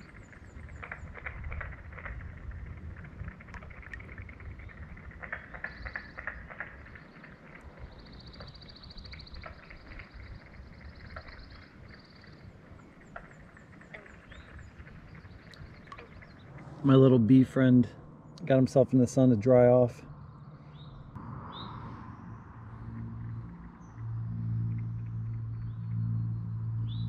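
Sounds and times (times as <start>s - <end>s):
ripples lapping against paddleboard: 0.1s - 16.8s
low rumble: 20.0s - 27.0s.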